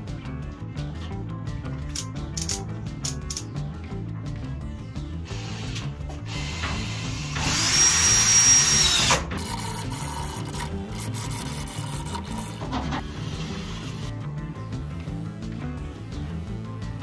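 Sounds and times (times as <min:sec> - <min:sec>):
power drill whining: 0:05.3 - 0:14.0.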